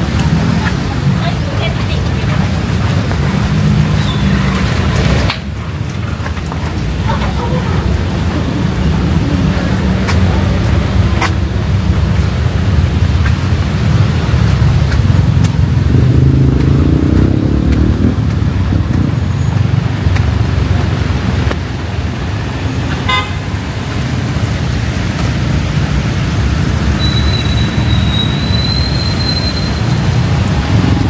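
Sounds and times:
road traffic on wet streets: 0:00.0 - 0:31.0
car horn: 0:23.0 - 0:23.6.

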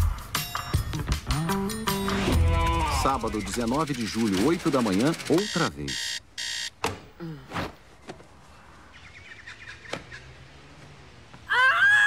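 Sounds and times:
alarm clock buzzing: 0:03.5 - 0:06.7.

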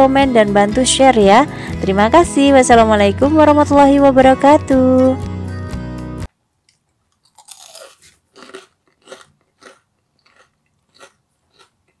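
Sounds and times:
crunchy chewing: 0:06.7 - 0:12.0
crunchy bite: 0:07.1 - 0:12.0.

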